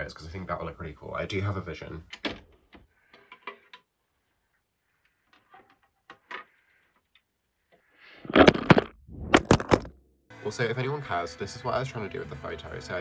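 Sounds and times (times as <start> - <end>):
vinyl record and sleeve rustling: 8.2 - 9.9.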